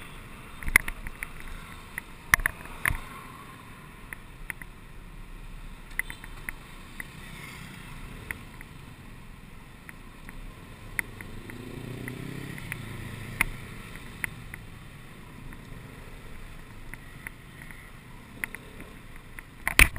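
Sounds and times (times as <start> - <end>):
muffled road noise: 0.0 - 19.9
sharp ticks: 9.8 - 14.8, 16.6 - 19.9.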